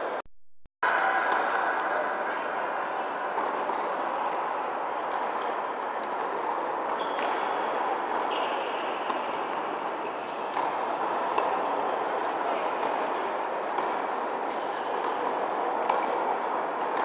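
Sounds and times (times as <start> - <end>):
shoes squeaking on court: 6.9 - 7.6
racket striking ball: 8.1 - 9.6, 10.5 - 11.9, 15.0 - 16.2.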